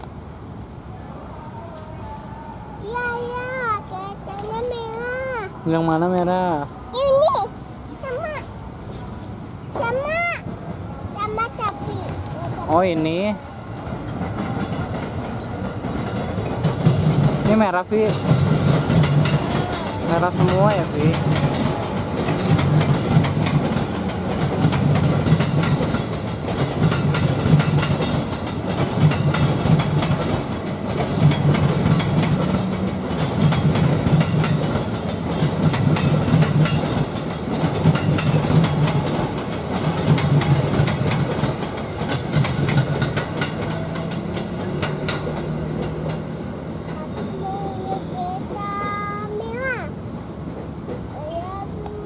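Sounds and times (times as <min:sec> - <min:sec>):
low train rumble: 0:00.0 - 0:52.0
train wheels clattering over rail joints: 0:14.0 - 0:47.4.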